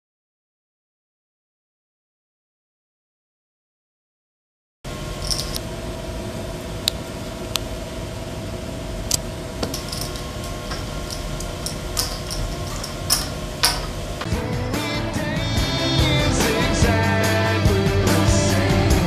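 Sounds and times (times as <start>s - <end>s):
room hum: 4.9s - 19.0s
cards and poker chips clicking: 5.2s - 5.6s, 9.6s - 14.0s.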